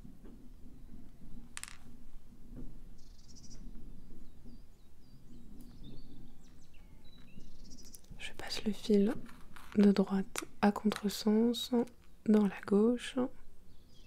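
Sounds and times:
hands handling beads: 1.6 - 1.9, 7.2 - 12.5
birds chirping: 3.0 - 9.2, 9.9 - 14.0.

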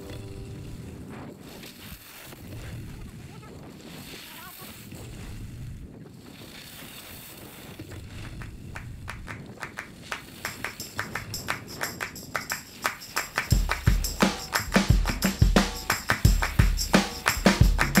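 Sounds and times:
rhythmic percussion hits: 10.5 - 18.0.

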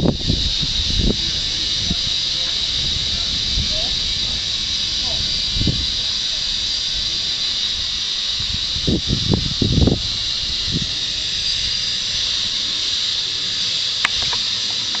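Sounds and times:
high-pitched hiss: 0.0 - 15.0
sharp click: 14.0 - 15.0.

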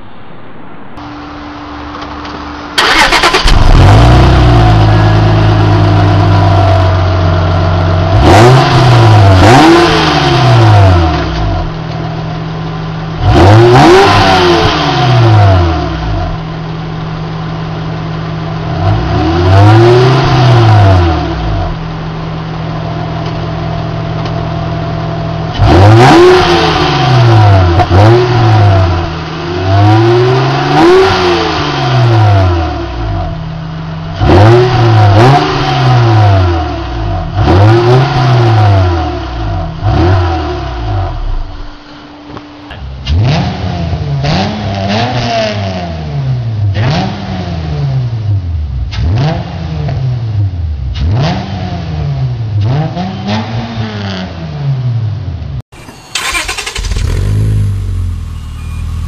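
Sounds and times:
car engine idling: 0.0 - 9.6, 10.6 - 13.6, 15.6 - 19.2, 21.0 - 25.6, 39.0 - 43.2, 55.7 - 59.0
car engine starting: 0.0 - 54.4, 55.0 - 59.0
car engine revving: 0.0 - 54.5, 55.7 - 59.0.

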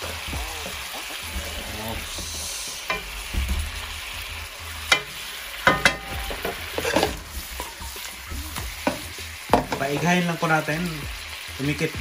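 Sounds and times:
chicken sizzling in a wok: 0.0 - 12.0
spatula knocking and scraping pan: 0.7 - 10.2.

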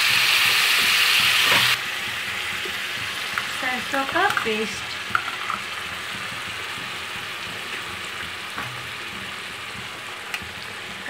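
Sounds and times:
paste sizzling in hot oil: 0.0 - 11.0.

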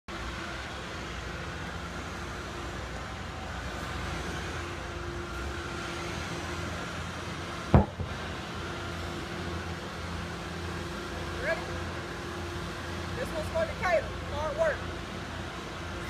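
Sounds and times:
tractor tire slamming onto concrete: 7.7 - 8.2.

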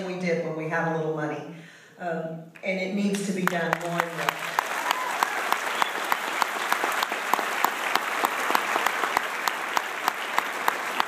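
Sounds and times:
audience applauding: 3.4 - 11.0
close sharp hand claps: 3.4 - 11.0.

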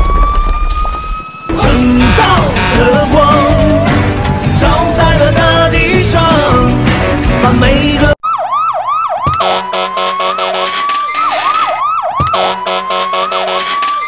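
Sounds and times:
emergency siren whooping and wailing: 0.0 - 6.4, 8.2 - 14.0
music: 1.5 - 8.2.

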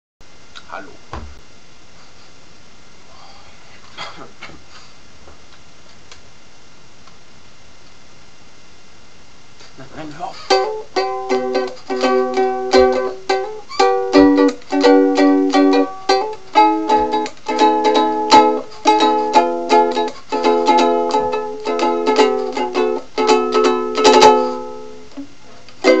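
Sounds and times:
ukulele chords strummed: 10.4 - 26.0.

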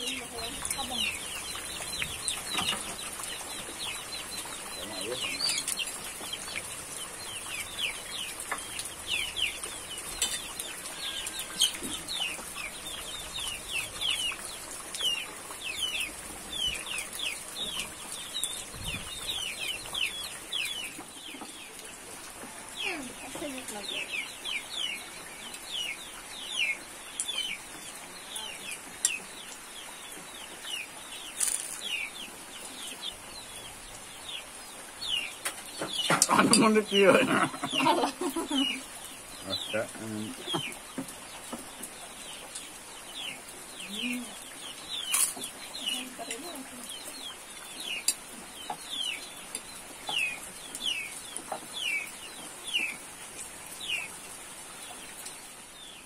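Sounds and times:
chicks peeping: 0.0 - 56.0
low clucking calls: 35.4 - 42.7.

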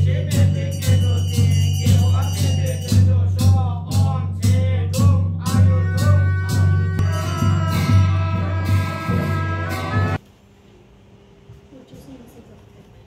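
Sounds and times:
ceremonial drum beating: 0.0 - 10.2
ringing tones: 0.2 - 3.6, 7.0 - 10.2
chanting: 5.5 - 10.2.

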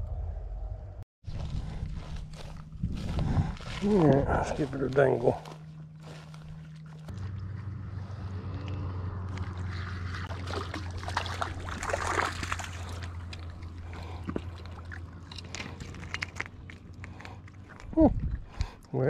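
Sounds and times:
steady low hum: 0.0 - 18.9
small splashes in shallow water: 9.3 - 15.1.

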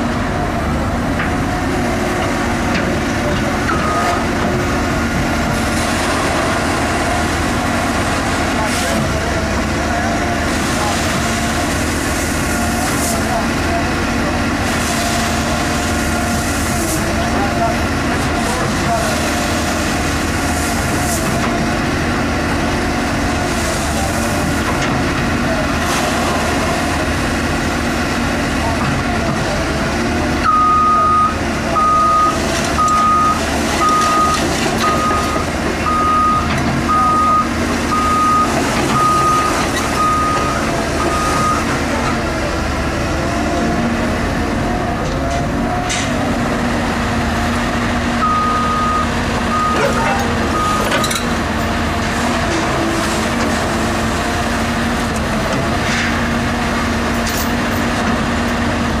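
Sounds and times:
diesel engine running: 0.0 - 59.0
excavator travel alarm beeping: 3.6 - 4.4, 30.4 - 41.8, 48.2 - 51.4.

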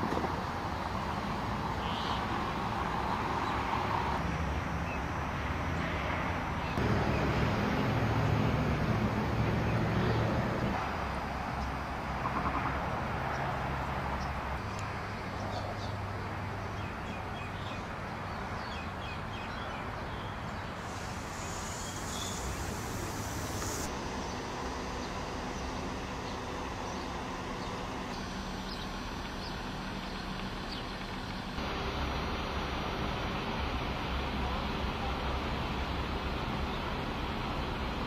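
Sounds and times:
small birds chirping: 14.1 - 31.5.

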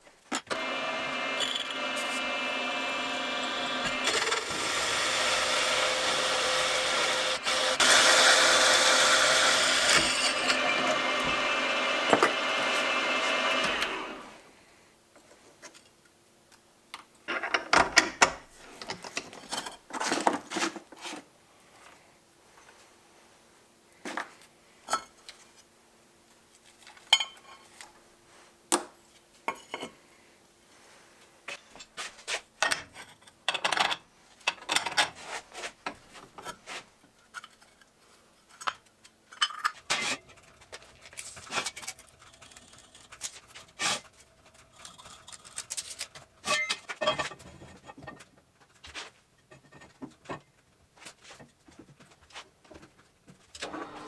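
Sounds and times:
steel tools clinking and scraping: 44.6 - 47.4.

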